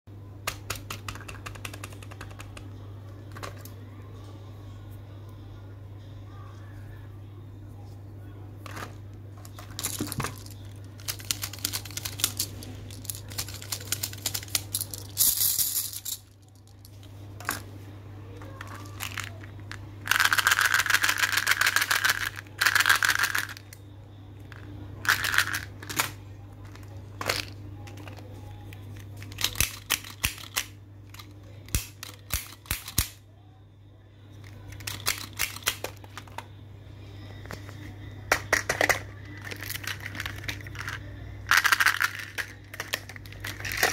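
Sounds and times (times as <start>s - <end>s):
plastic toys clattering: 0.5s - 2.7s, 3.3s - 3.7s, 8.6s - 17.7s, 18.4s - 23.7s, 24.5s - 28.3s, 28.9s - 33.2s, 34.4s - 36.5s, 37.4s - 43.9s.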